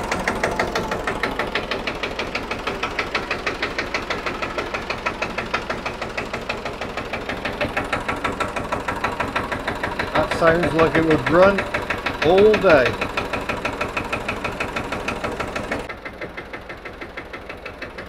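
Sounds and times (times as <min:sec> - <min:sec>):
tractor diesel engine idling: 0:00.0 - 0:18.0.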